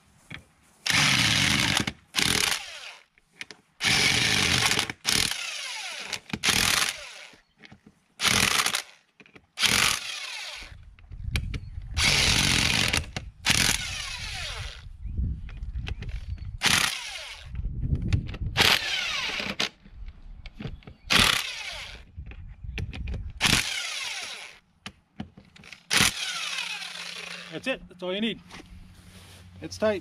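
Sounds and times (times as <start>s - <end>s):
electric impact wrench bursts: 0.9s - 3.0s, 3.8s - 7.4s, 9.6s - 10.7s, 12.0s - 14.8s, 16.6s - 17.5s, 18.6s - 19.6s, 21.1s - 22.0s, 23.4s - 24.6s, 25.9s - 27.6s.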